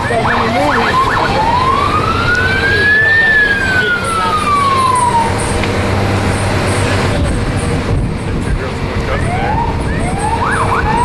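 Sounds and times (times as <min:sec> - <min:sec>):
siren rising and falling: 0:00.0 - 0:06.5, 0:09.1 - 0:11.0
bus road and engine noise: 0:00.0 - 0:11.0.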